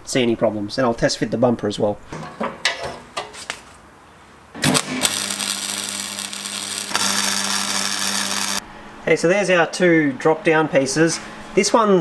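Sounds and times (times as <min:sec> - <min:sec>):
angle grinder on metal: 0:04.6 - 0:08.6.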